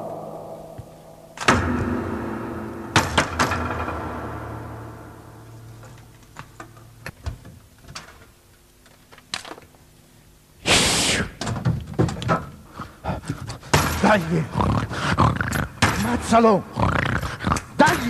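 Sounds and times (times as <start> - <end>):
loud crash: 1.4 - 5.7
objects clattering and banging: 2.9 - 9.7, 11.4 - 12.6, 13.3 - 14.4.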